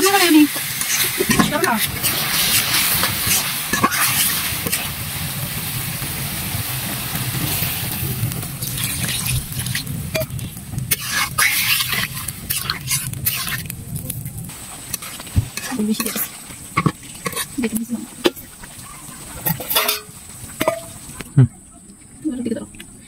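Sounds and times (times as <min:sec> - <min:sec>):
metal spatula scraping a pan: 0:00.0 - 0:04.9, 0:08.6 - 0:13.7, 0:14.9 - 0:18.5, 0:19.4 - 0:21.0
vegetables sizzling in a pan: 0:00.0 - 0:21.3.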